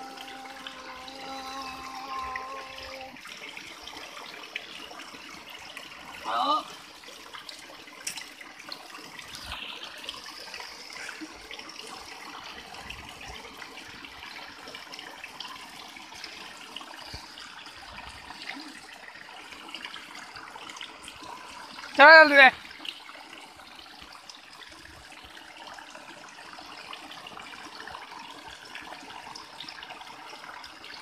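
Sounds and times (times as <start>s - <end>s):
water trickling into stone channel: 0.0s - 31.0s.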